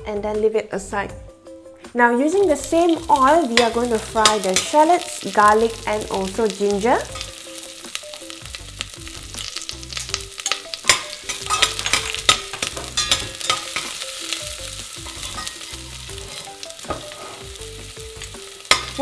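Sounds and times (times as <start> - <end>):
food sizzling in hot oil: 2.4 - 19.0
utensil scraping metal pot: 9.9 - 17.6.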